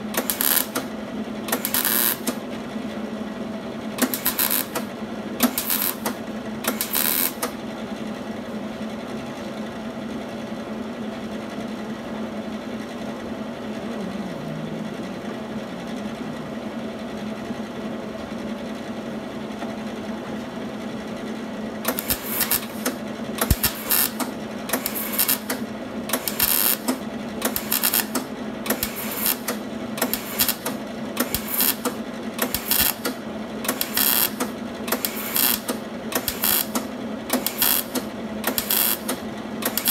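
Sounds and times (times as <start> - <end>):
welder crackling bursts: 0.0 - 0.9, 1.5 - 2.4, 4.0 - 7.5, 21.9 - 39.9
steady hum: 12.0 - 19.6, 21.7 - 39.9.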